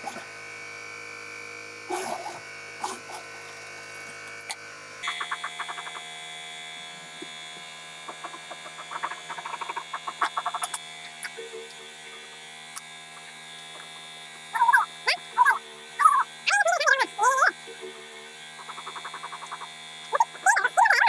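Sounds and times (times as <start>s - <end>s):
electrical hum of machinery: 0.0s - 21.0s.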